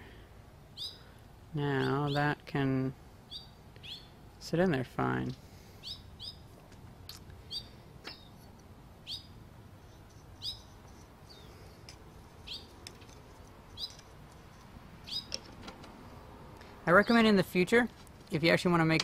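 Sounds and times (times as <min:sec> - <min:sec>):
bird chirping: 0:00.7 - 0:01.1, 0:01.7 - 0:02.4, 0:03.2 - 0:04.2, 0:05.8 - 0:06.5, 0:07.4 - 0:15.5.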